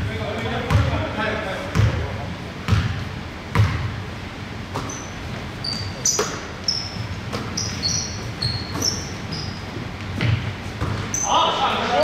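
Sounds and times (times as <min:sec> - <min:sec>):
basketball bouncing on wooden floor: 0:00.7 - 0:01.0, 0:01.7 - 0:02.0, 0:02.7 - 0:04.0, 0:10.0 - 0:11.1
shoes squeaking on court: 0:04.7 - 0:11.5.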